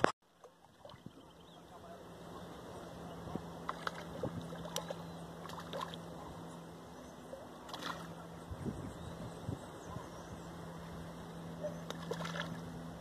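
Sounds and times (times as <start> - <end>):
low hum: 0.0 - 13.0
fish feeding pops and splashes: 3.7 - 6.0, 7.7 - 8.1, 11.8 - 12.6.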